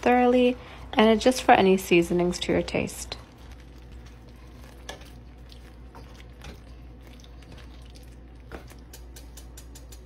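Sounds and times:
spoon stirring thick sauce: 2.7s - 10.0s.

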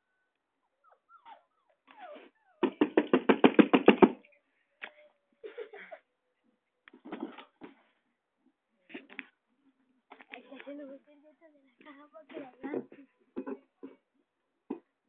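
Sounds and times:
puppy whining and yipping: 0.0s - 2.9s.

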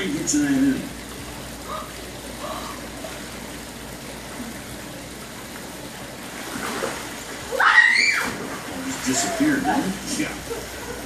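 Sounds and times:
waterfall trickling and splashing: 0.0s - 11.0s
high-pitched cry: 7.5s - 8.3s.

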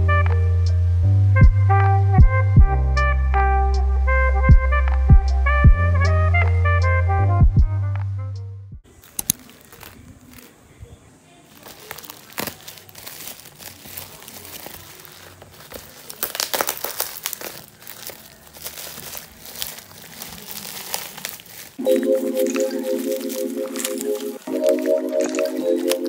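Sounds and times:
bubble wrap crinkling: 8.9s - 26.0s.

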